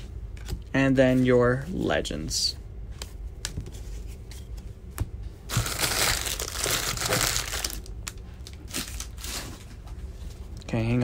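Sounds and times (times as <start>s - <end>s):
foil wrappers crinkling: 5.5s - 9.8s.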